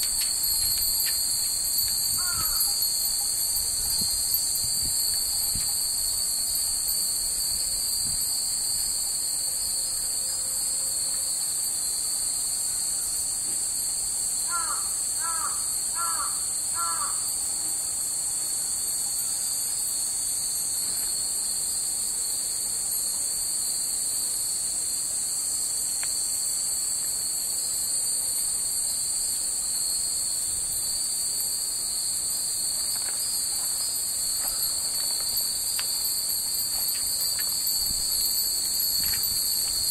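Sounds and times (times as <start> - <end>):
cicadas droning: 0.0 - 39.9
crow cawing: 2.2 - 2.8, 14.5 - 17.3.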